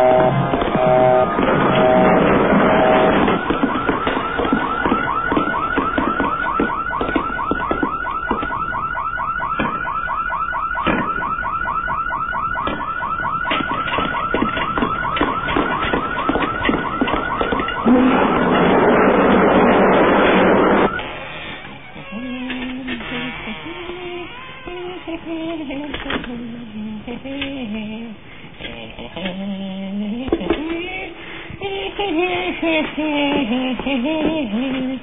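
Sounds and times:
knocks and clicks: 0.0 - 10.1, 10.8 - 21.0
electronic alarm warbling: 0.0 - 21.1.

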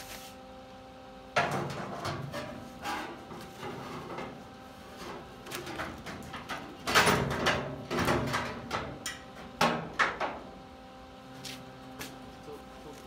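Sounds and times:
metal knocks and scraping: 1.4 - 10.4.

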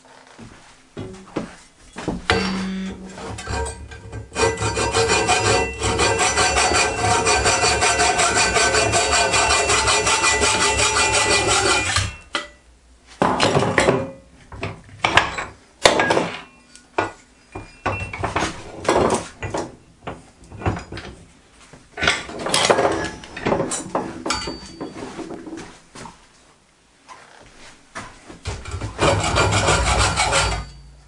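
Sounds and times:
metal scraping: 1.9 - 12.3, 28.5 - 31.0
hacksaw cutting metal: 2.3 - 12.5, 28.5 - 30.9.

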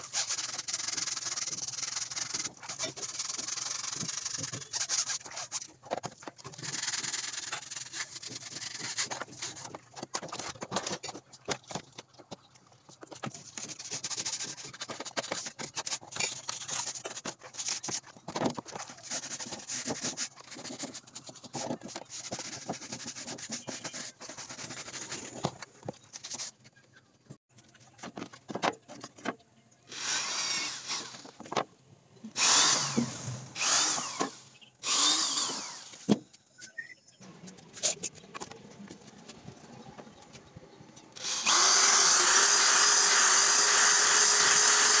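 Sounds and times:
plastic brush scrubbing wet panel: 0.0 - 12.3.

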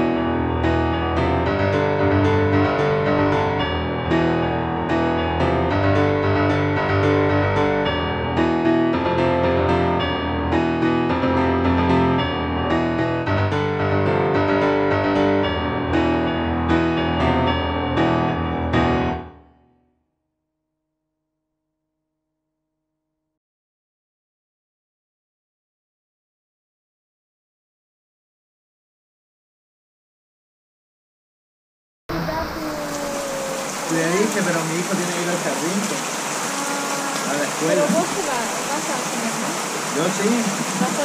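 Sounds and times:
solo piano music: 0.0 - 19.8.

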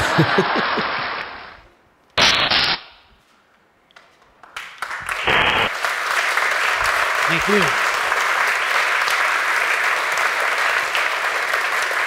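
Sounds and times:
audience applause: 0.0 - 1.5, 4.4 - 12.0.

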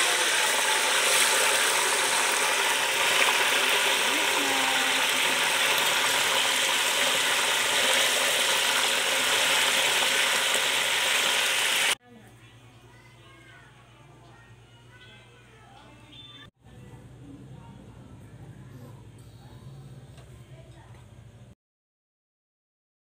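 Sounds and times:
chicken deep-frying in hot oil: 0.0 - 12.0.

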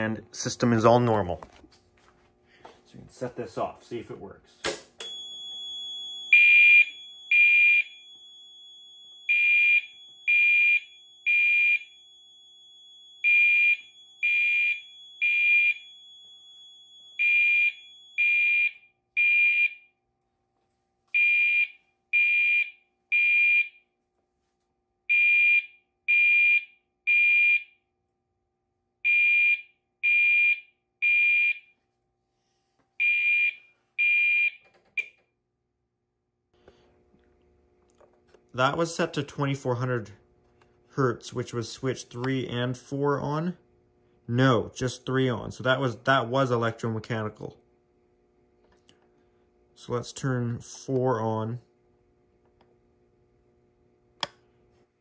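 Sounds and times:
fire alarm horn blasts: 5.1 - 19.8.

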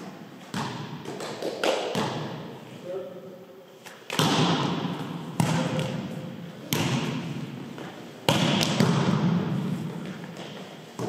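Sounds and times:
volleyball smacks echoing: 0.5 - 2.5, 4.1 - 7.6, 8.2 - 11.0.

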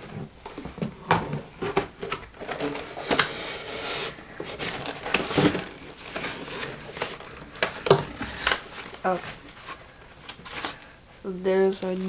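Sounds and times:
cardboard box scraping and rustling: 1.6 - 7.2.

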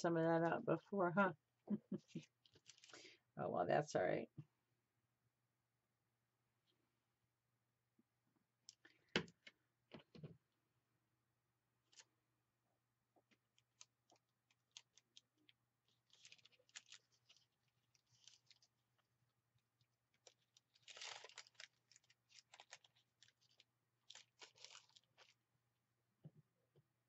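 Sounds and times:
paper crinkling under fingers: 2.1 - 3.1, 13.3 - 25.4.

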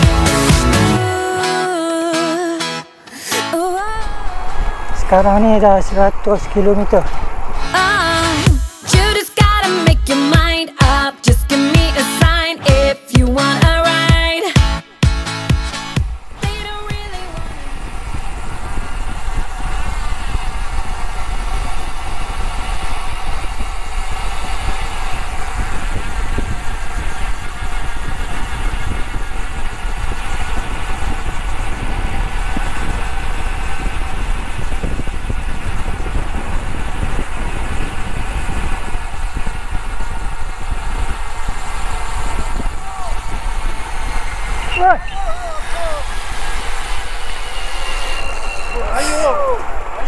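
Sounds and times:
tyre and road noise: 3.7 - 8.7, 15.0 - 50.0
wind buffeting microphone: 16.2 - 47.7.

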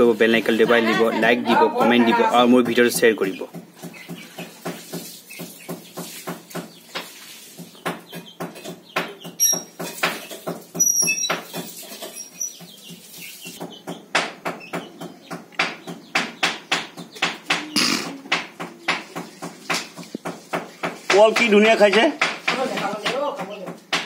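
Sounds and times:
high bird chirps: 7.7 - 18.1.

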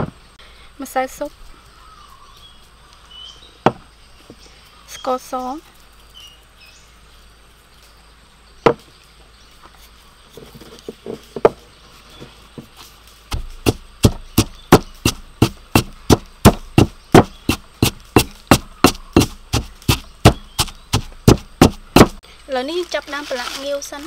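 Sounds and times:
pestle pounding in stone mortar: 13.3 - 22.2.

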